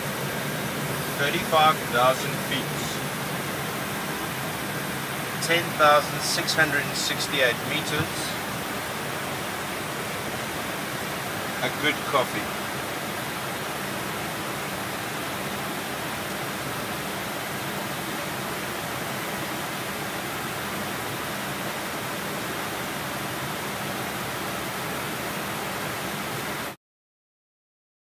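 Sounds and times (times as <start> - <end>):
airliner cabin engine rush: 0.0 - 26.7.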